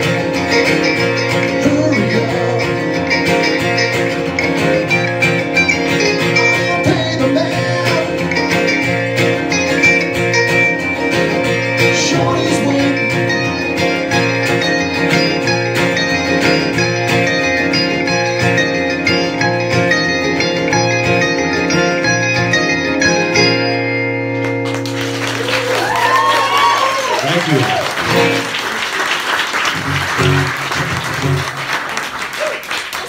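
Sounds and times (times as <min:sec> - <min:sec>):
small plucked string instrument: 0:00.0 - 0:25.0
strummed acoustic guitar: 0:00.0 - 0:25.4, 0:29.6 - 0:31.7.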